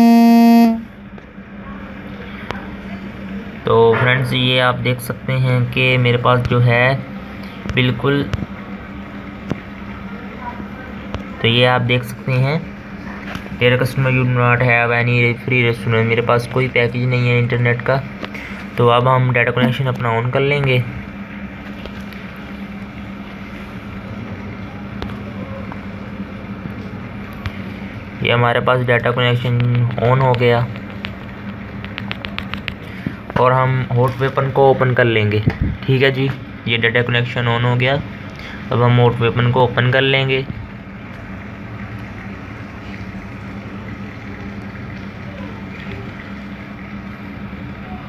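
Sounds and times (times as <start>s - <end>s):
low hum: 0.0s - 2.3s
constant background noise: 0.0s - 48.0s
steady background noise: 0.0s - 48.0s.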